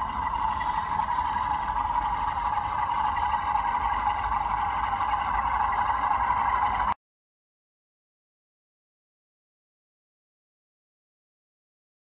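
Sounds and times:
model locomotive running on track: 0.0s - 7.0s.

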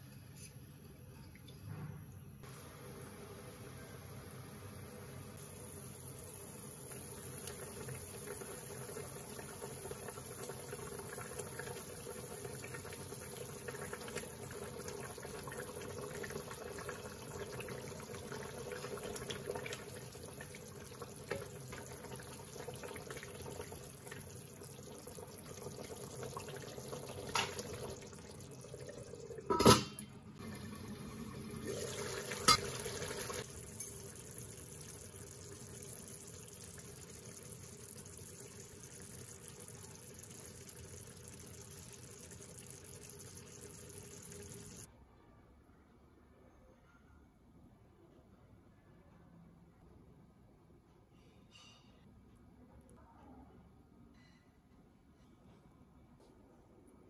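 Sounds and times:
curry bubbling in a pan: 5.4s - 29.4s, 30.4s - 44.9s.

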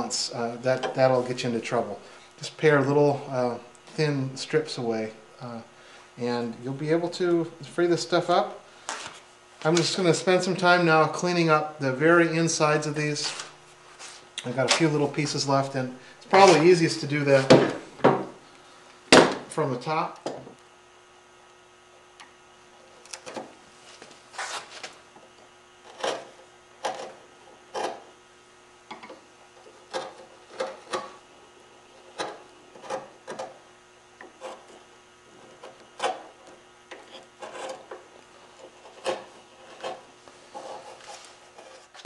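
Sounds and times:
chisel scraping wood: 25.8s - 28.1s, 29.6s - 31.2s, 32.0s - 33.6s, 34.2s - 42.0s.

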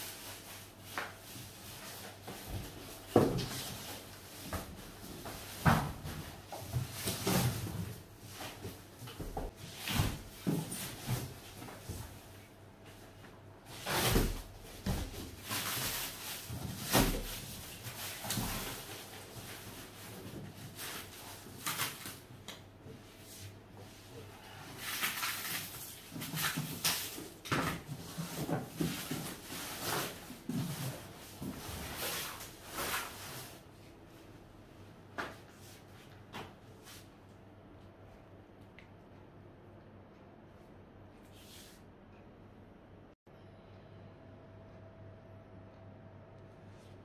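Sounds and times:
cardboard and plastic rustling: 0.1s - 12.3s, 13.7s - 22.3s, 24.7s - 33.6s.

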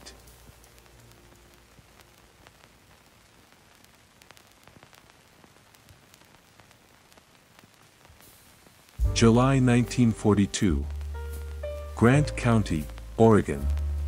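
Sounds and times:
faint steady hiss: 0.0s - 14.0s
soft ticks: 0.1s - 5.1s.

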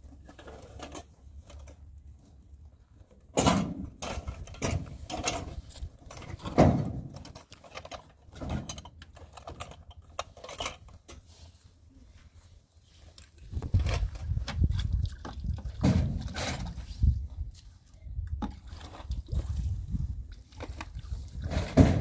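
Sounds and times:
objects knocking and clunking: 3.1s - 11.2s, 13.5s - 16.9s, 20.5s - 22.0s.

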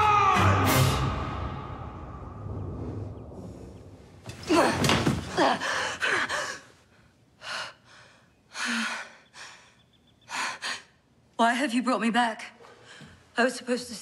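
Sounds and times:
woman breathing: 5.5s - 11.0s.

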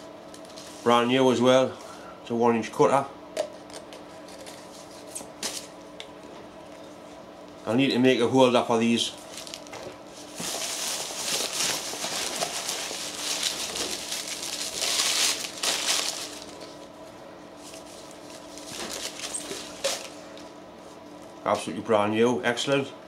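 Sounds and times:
tissue paper crinkling: 9.2s - 16.8s, 17.6s - 20.2s.

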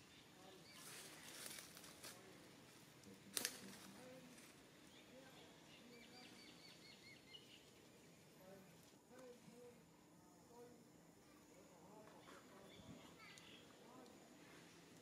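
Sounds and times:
small bird chirps: 12.6s - 13.8s.

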